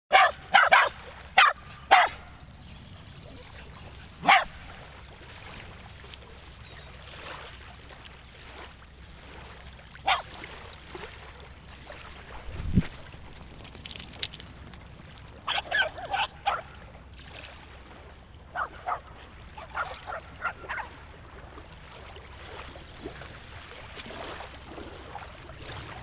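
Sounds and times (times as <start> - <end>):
dog barking: 0.1 - 2.3, 4.2 - 4.6, 10.0 - 10.3, 15.5 - 16.8, 18.5 - 20.9.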